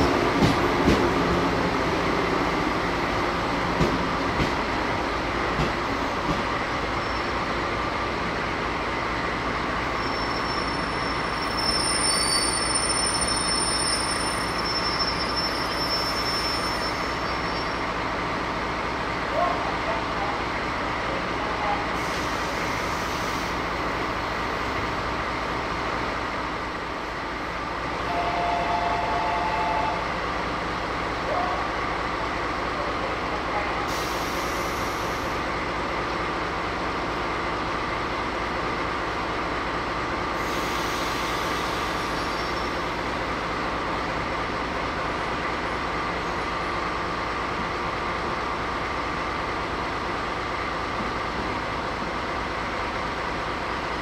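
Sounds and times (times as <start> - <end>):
diesel locomotive idling: 0.0 - 54.0
hiss: 22.0 - 23.7, 33.9 - 35.4, 40.4 - 42.4.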